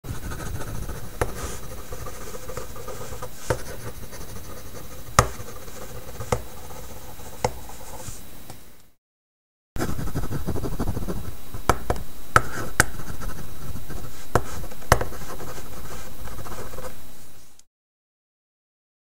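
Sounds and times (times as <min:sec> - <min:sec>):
chalk scratching on chalkboard: 0:00.1 - 0:08.2, 0:09.8 - 0:11.8, 0:12.4 - 0:17.0
chalk taps: 0:00.3 - 0:08.2, 0:09.8 - 0:17.0.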